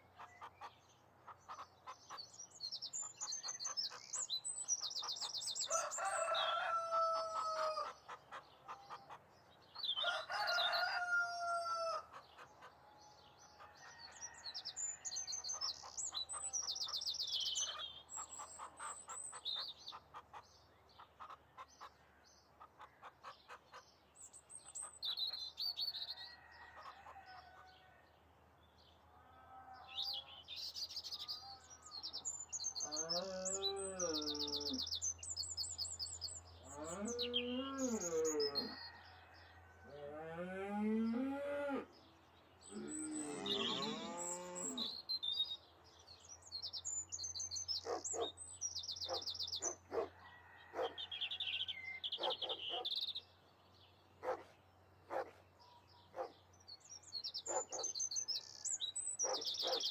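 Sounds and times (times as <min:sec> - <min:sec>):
small birds chirping: 0:00.0 - 0:27.9, 0:28.6 - 0:39.3, 0:42.0 - 0:59.9
rooster crowing: 0:05.7 - 0:07.9, 0:10.0 - 0:12.1, 0:36.8 - 0:40.2, 0:50.0 - 0:51.4.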